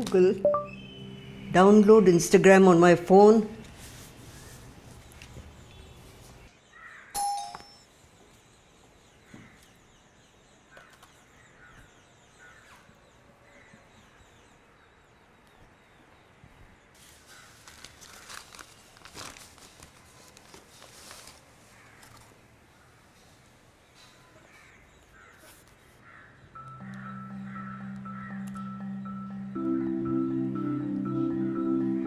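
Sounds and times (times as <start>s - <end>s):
short chime: 7.2s - 7.9s
paper bag crinkling: 17.0s - 22.3s.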